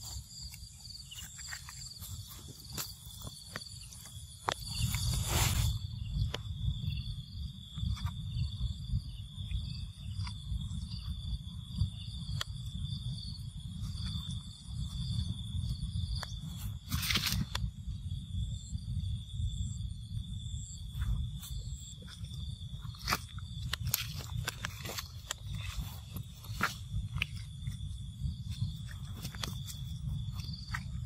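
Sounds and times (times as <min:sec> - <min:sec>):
dry leaves and twigs crackling: 0:00.0 - 0:05.8, 0:16.5 - 0:17.7, 0:20.9 - 0:31.0
insects buzzing: 0:00.0 - 0:31.0.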